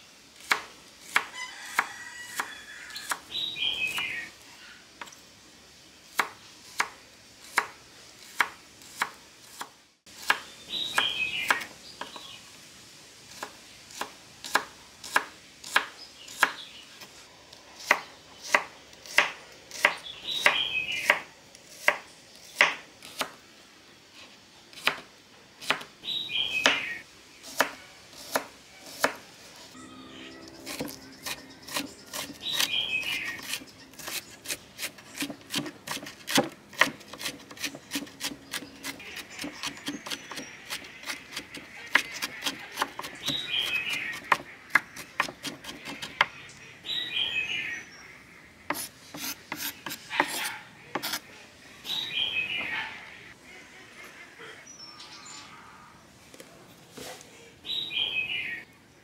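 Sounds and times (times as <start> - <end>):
knife chopping on wooden board: 30.7 - 46.3, 48.7 - 51.2.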